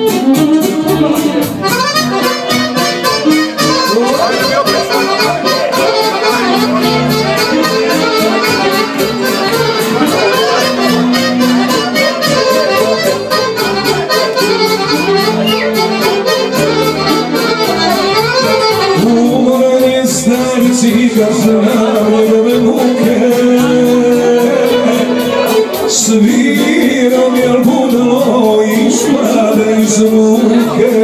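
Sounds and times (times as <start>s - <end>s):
violin: 0.0s - 19.5s
accordion: 0.0s - 31.0s
man's voice: 0.6s - 1.8s, 3.5s - 17.2s, 18.5s - 31.0s.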